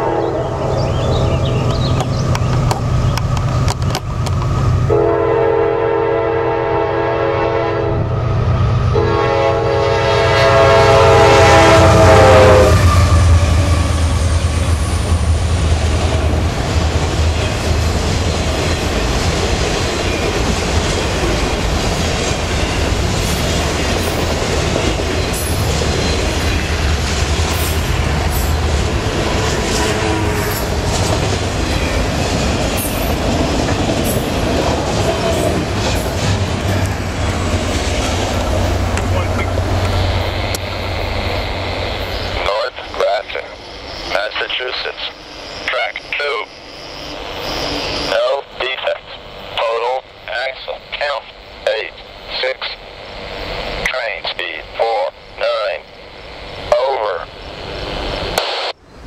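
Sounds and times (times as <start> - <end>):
train air horn blasts: 0.0 - 0.5, 4.9 - 8.1, 8.9 - 14.3, 29.6 - 30.7
freight cars rumbling on rails: 0.0 - 44.3.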